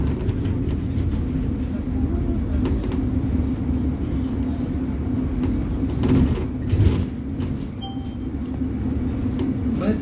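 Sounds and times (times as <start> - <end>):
bus engine and road rumble: 0.0 - 10.0.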